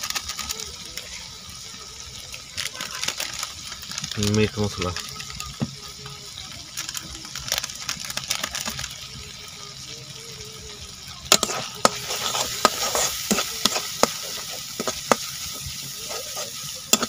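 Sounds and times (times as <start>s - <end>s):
masala sizzling in oil: 0.0s - 17.0s
metal spatula scraping pan: 11.3s - 17.0s.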